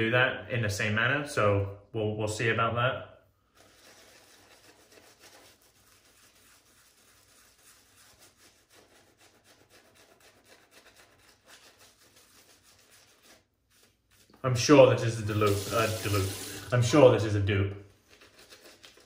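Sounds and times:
shaving brush swishing on face: 0:03.6 - 0:14.4, 0:15.2 - 0:17.0.

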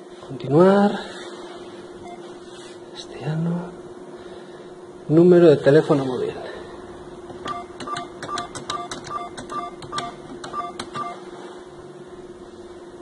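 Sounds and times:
steady hum: 0:00.0 - 0:13.0
keypad clicks with beeps: 0:07.4 - 0:11.2.

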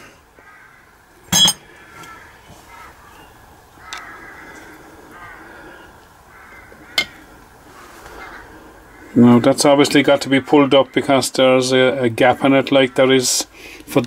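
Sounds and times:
sharp metallic clink: 0:01.3 - 0:01.6.

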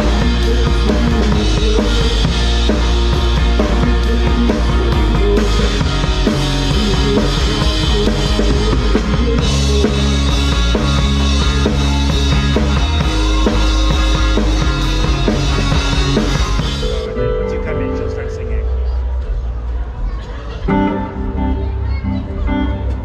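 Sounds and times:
drum kit: 0:00.0 - 0:18.2
live band playing: 0:00.0 - 0:23.0.

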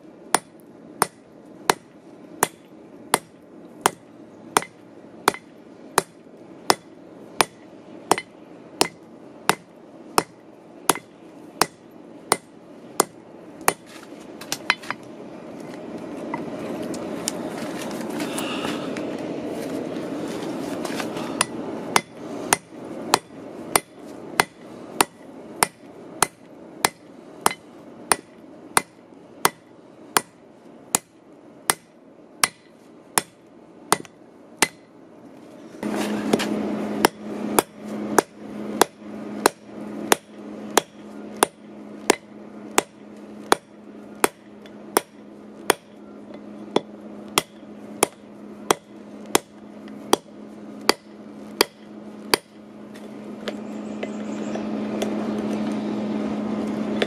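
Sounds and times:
steady low hum: 0:00.0 - 0:57.0
hammer striking metal on anvil: 0:00.3 - 0:04.0, 0:04.6 - 0:13.8, 0:21.4 - 0:29.6, 0:31.7 - 0:34.9, 0:36.3 - 0:49.5.

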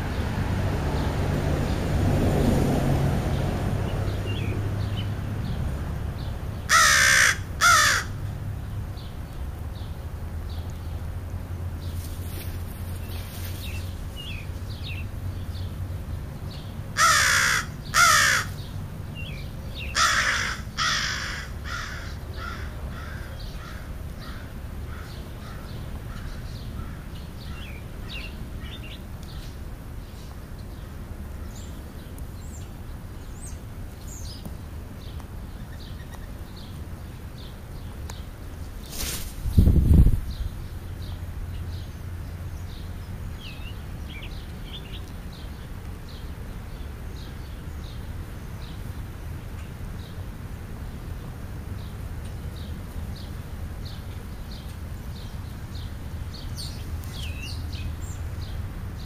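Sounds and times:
crow cawing: 0:06.7 - 0:08.2, 0:17.0 - 0:18.6, 0:20.0 - 0:27.6
small birds chirping: 0:11.7 - 0:59.0.

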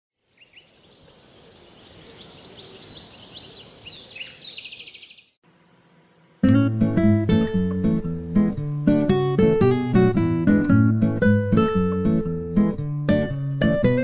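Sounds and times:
birds chirping: 0:00.2 - 0:05.4
strummed acoustic guitar music: 0:06.4 - 0:14.0.

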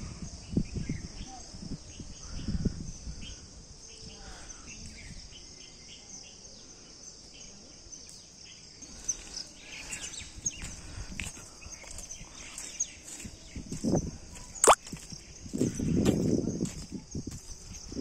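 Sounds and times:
insects chirping chorus: 0:00.0 - 0:18.0.

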